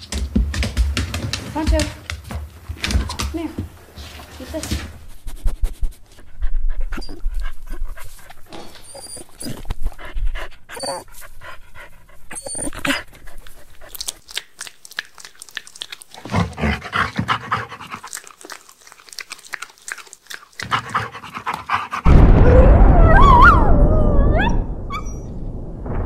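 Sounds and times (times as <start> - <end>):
dog panting: 4.1 - 14.3, 15.8 - 22.1
dog crunching on a bone: 13.3 - 16.8, 17.6 - 21.7.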